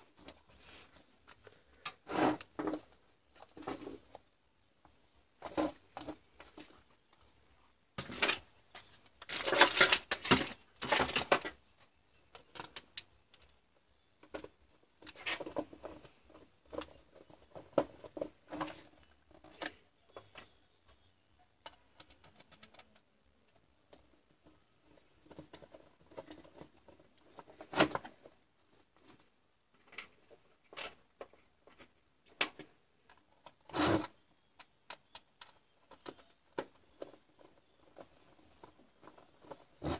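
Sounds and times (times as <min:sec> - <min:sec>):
plastic scraping: 0:01.8 - 0:04.2, 0:08.0 - 0:11.6, 0:33.4 - 0:34.2, 0:35.1 - 0:39.9.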